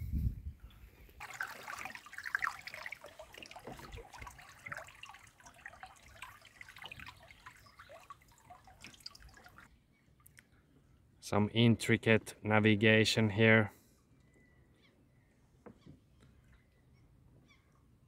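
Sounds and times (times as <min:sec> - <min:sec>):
water lapping against a hull: 0:01.1 - 0:10.4.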